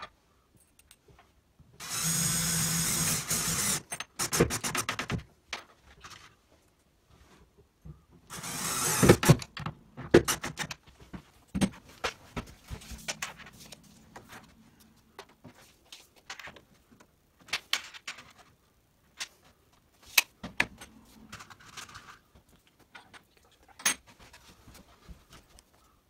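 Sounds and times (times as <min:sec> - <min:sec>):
tools clicking and knocking on panels: 0:09.0 - 0:13.4.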